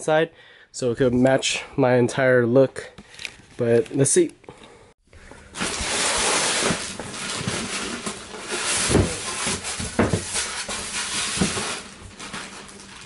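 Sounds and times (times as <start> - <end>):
packaging rustling and scraping: 5.4 - 13.0.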